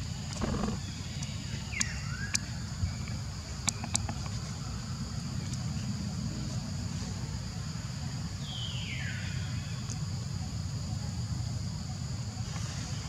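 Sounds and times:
high insect drone: 0.0 - 1.6.

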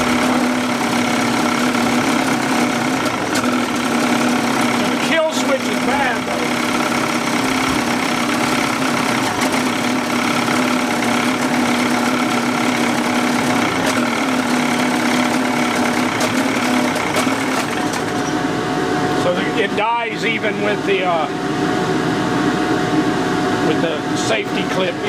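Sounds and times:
outboard motor idling: 0.0 - 18.3.

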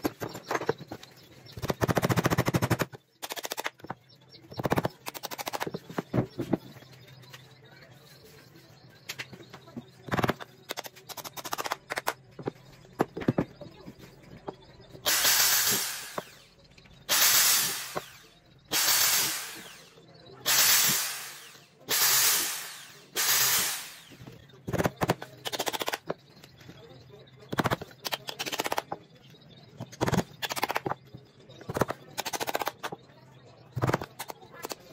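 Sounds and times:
knocks and clicks of tools: 0.0 - 7.5, 9.0 - 19.9, 20.5 - 26.8, 27.5 - 29.0, 29.8 - 33.1, 33.8 - 34.9
power drill boring: 15.1 - 16.4, 17.1 - 24.2.

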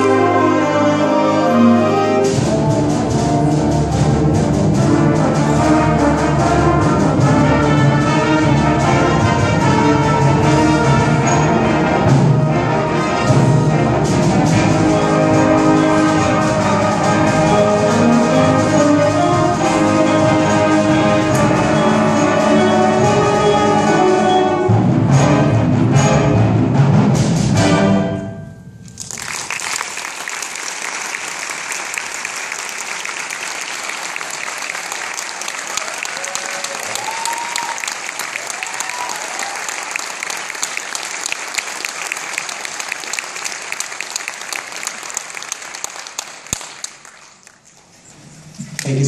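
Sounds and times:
concert band playing chords: 0.0 - 29.2
audience applause: 29.0 - 47.7.

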